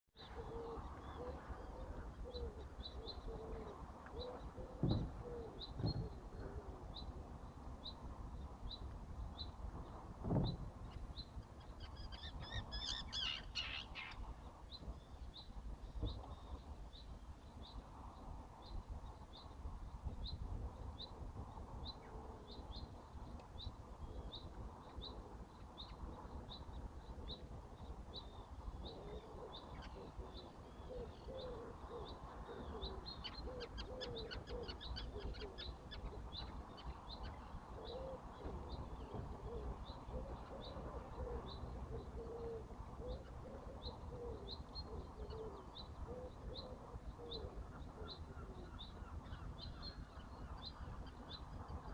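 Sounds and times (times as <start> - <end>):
low cooing calls: 0.2 - 7.2, 21.0 - 23.0, 23.6 - 51.9.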